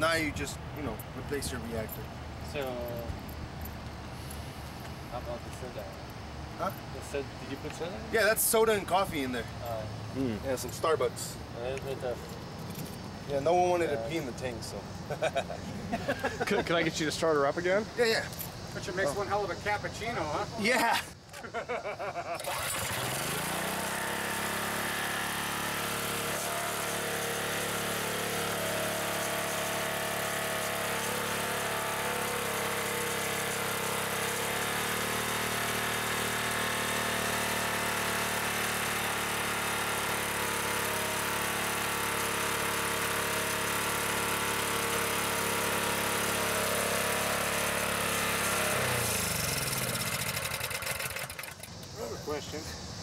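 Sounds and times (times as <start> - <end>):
small engine running: 22.4 - 52.6.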